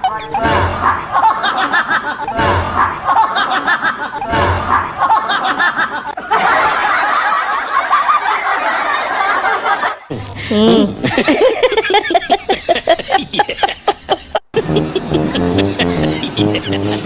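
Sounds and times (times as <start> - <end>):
snickering laughter: 0.8 - 17.0.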